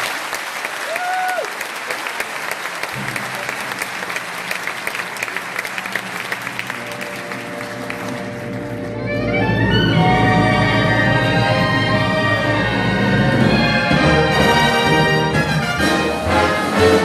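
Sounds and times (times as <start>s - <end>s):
audience applauding: 0.0s - 9.0s
orchestra low held chord: 6.0s - 17.0s.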